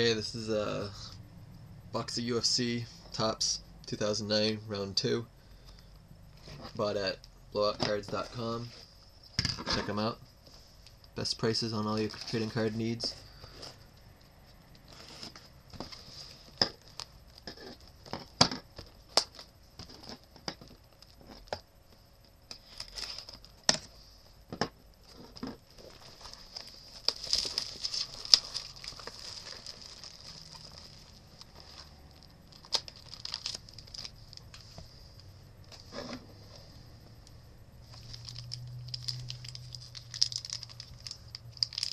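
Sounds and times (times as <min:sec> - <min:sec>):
plastic wrapping crinkling and tearing: 0:22.6 - 0:23.6, 0:25.1 - 0:34.6, 0:37.9 - 0:41.9.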